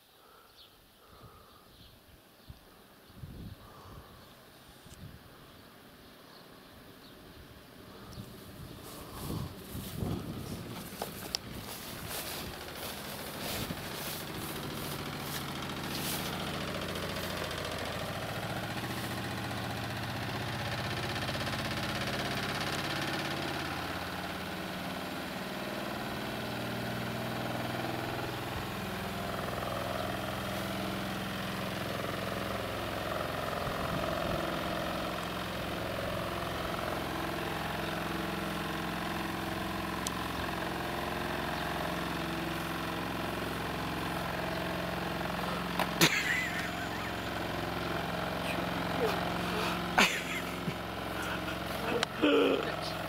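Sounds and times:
motor humming: 7.8s - 24.8s, 39.5s - 53.0s.

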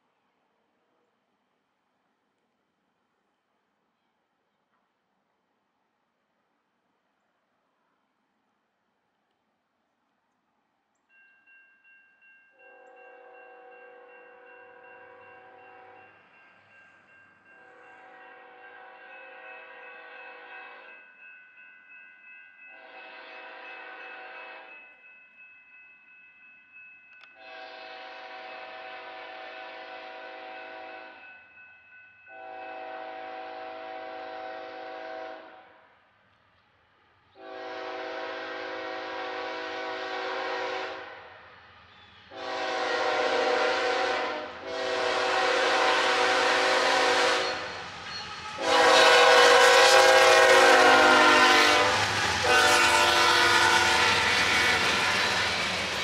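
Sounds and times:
locomotive air horn blasts: 22.8s - 24.7s, 27.4s - 31.2s, 32.3s - 35.6s, 37.4s - 41.2s, 42.3s - 47.7s, 48.6s - 55.6s
train rumble: 37.4s - 56.0s.

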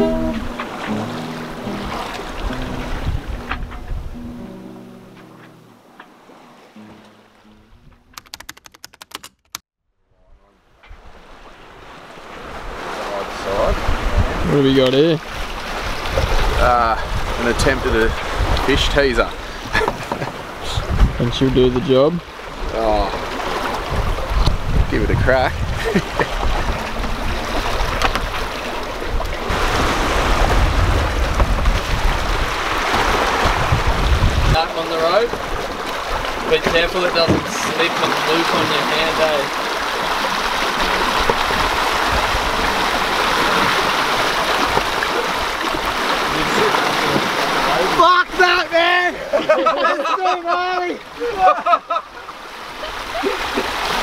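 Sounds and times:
wind and water rushing past boat: 0.0s - 8.5s, 10.3s - 54.0s
sharp clicks like typing: 8.1s - 9.6s.

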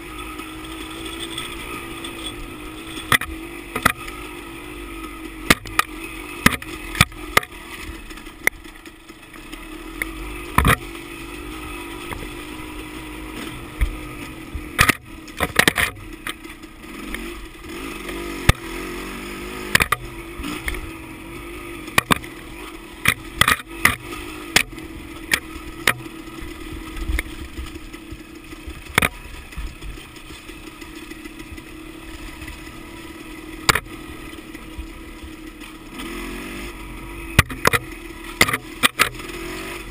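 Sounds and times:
dirt bike engine running: 0.0s - 39.9s
bike knocks and clacks: 5.4s - 11.0s, 13.8s - 16.6s, 19.7s - 20.8s, 21.9s - 22.4s, 23.0s - 31.7s, 33.6s - 34.0s, 37.4s - 39.3s.

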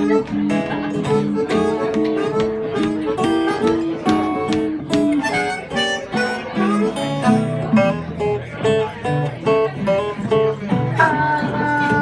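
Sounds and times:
harmonica holding long notes: 0.0s - 7.8s
plucked acoustic guitars: 0.0s - 12.0s.

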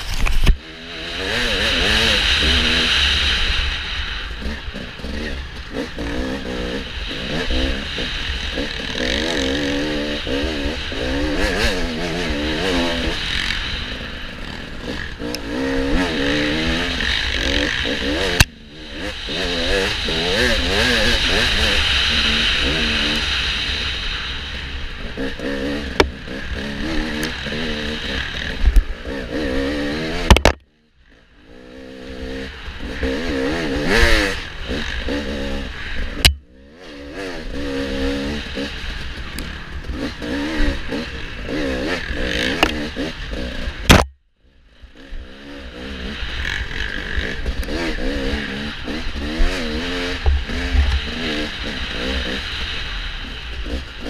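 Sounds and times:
dirt bike engine revving: 0.0s - 44.2s, 44.8s - 54.0s
sharp knocks: 30.3s - 30.6s, 43.9s - 44.2s.

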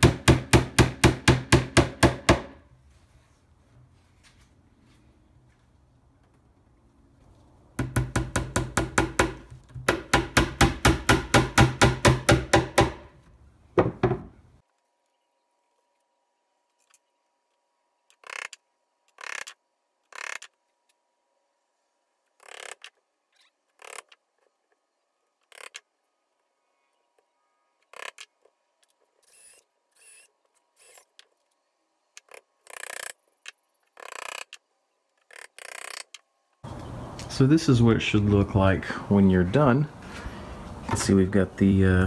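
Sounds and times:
soft rustles: 2.8s - 5.9s.

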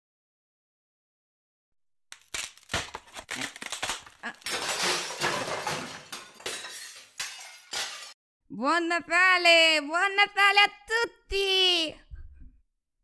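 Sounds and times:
wrapping paper crinkling: 2.1s - 4.5s.

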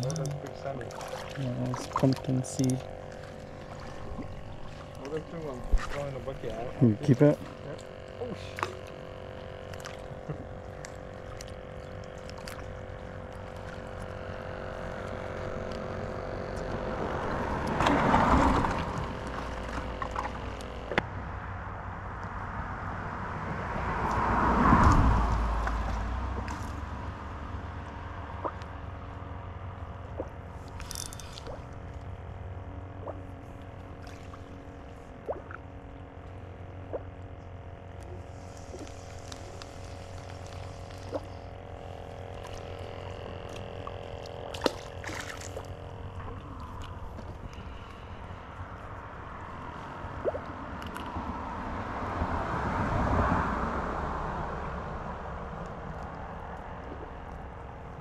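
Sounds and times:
small clicks: 0.0s - 0.6s
steady low hum: 0.0s - 58.0s
vehicles passing: 7.9s - 44.2s, 45.5s - 58.0s.

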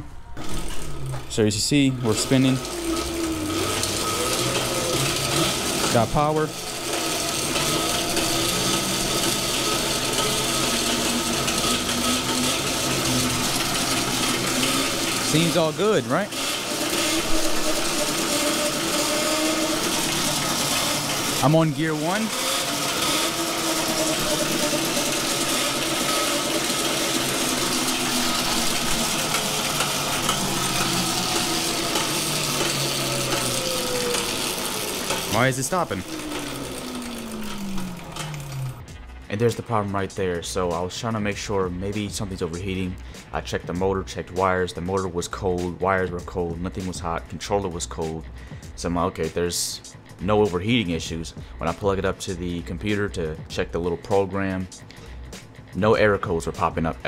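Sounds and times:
electric motor whine: 0.0s - 39.3s.

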